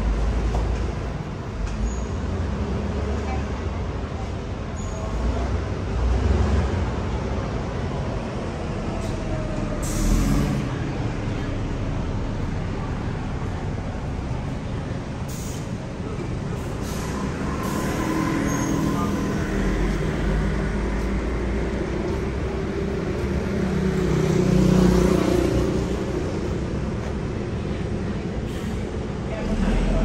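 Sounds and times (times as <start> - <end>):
city street traffic: 0.0 - 30.0
heavy vehicle engine passing: 5.0 - 30.0.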